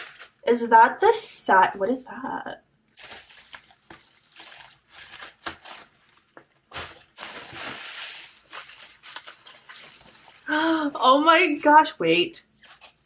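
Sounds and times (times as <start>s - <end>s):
bubble wrap crinkling: 0.0s - 0.5s, 2.9s - 10.7s.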